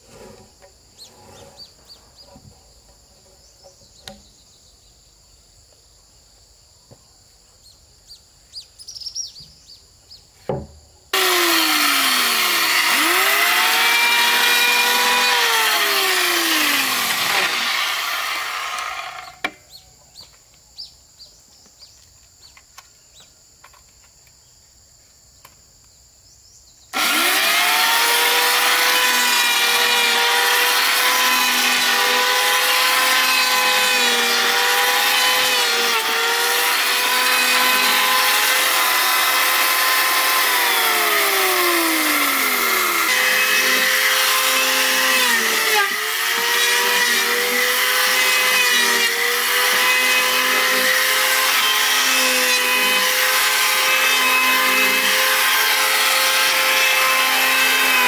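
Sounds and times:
wood-sawing machine motor drone: 0:11.2 - 0:19.5, 0:27.0 - 0:58.0.

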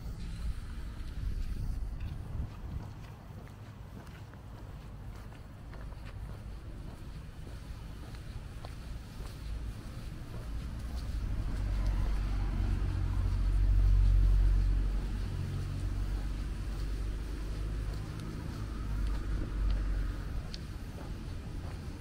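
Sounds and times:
vehicle engine rumble passing: 0:05.6 - 0:22.0.

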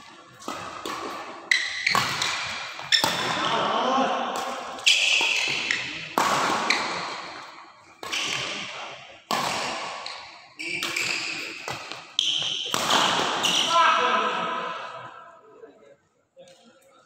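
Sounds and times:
rackets hitting shuttlecock: 0:00.0 - 0:03.4, 0:04.3 - 0:13.8.

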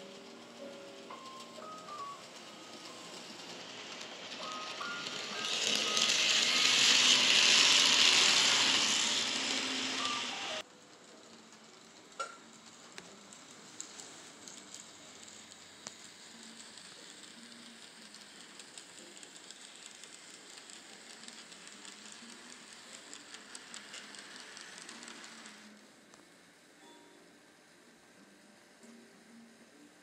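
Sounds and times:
model train wheels on track: 0:00.0 - 0:30.0.

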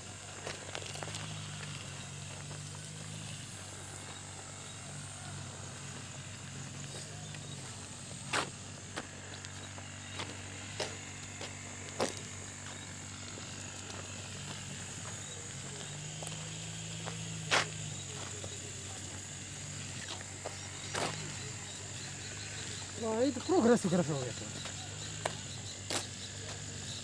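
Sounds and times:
insects droning: 0:00.0 - 0:27.0.

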